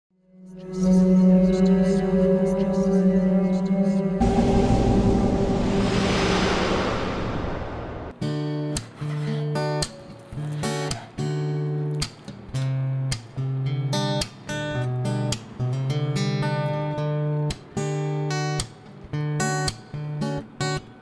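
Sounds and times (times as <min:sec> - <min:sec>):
guitar strumming chords: 0:00.6 - 0:06.4.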